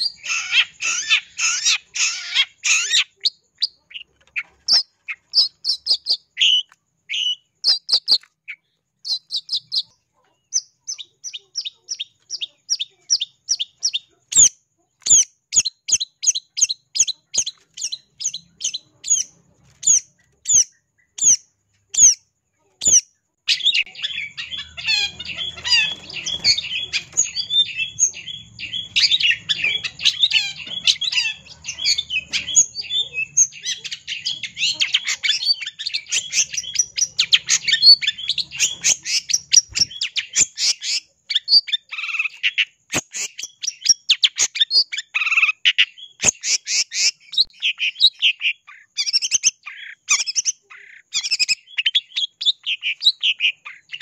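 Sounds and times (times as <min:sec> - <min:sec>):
bird singing fast chatter: 0:00.0 - 0:54.0.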